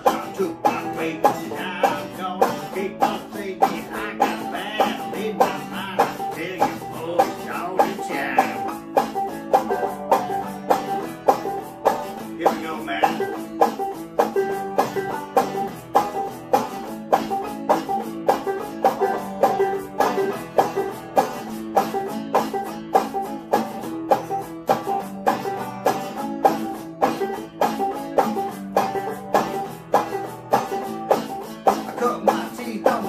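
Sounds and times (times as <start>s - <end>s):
banjo picking: 0.0s - 33.0s
strummed guitar: 0.0s - 33.0s.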